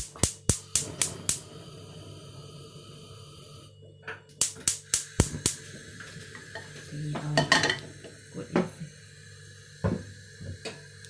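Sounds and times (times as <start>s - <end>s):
gas igniter clicking: 0.0s - 1.6s, 4.3s - 6.9s
gas hissing: 0.0s - 11.0s.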